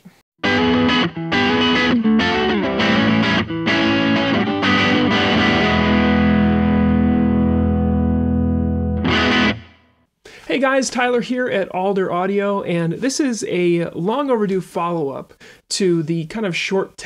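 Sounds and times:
distorted electric guitar chords: 0:00.4 - 0:10.0.

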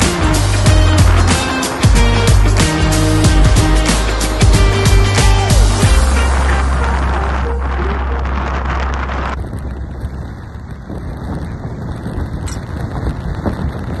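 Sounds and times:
heavy low rumble: 0:00.0 - 0:14.0
wind buffeting the microphone: 0:05.7 - 0:14.0.

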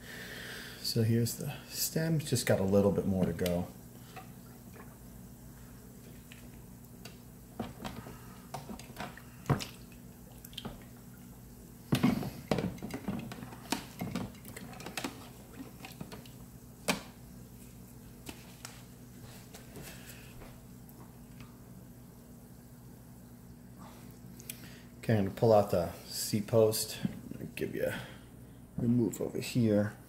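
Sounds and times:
steady low hum: 0:00.0 - 0:30.0
liquid splashing and dripping: 0:08.5 - 0:11.3.

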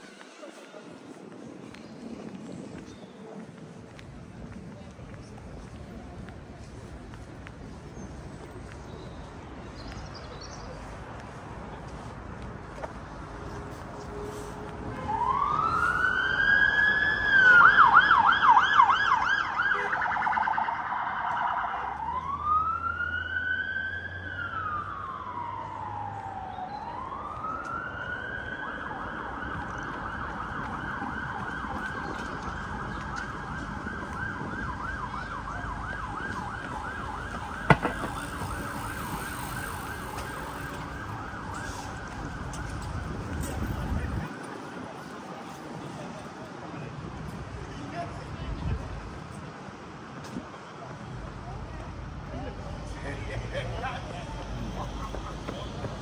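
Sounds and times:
emergency vehicle siren: 0:13.6 - 0:46.3.

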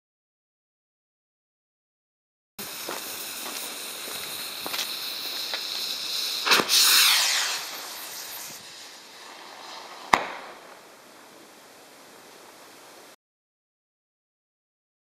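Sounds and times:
firework rocket launch whoosh: 0:02.6 - 0:11.1
firework bang: 0:02.7 - 0:10.8.

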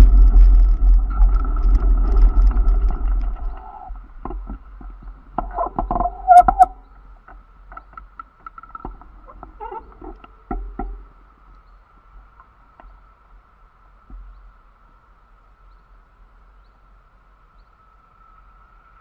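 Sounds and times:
car engine and tyre rumble: 0:00.0 - 0:05.8
faint ticks: 0:00.8 - 0:15.0
high squeaks and clicks: 0:05.4 - 0:07.0, 0:09.3 - 0:10.4.

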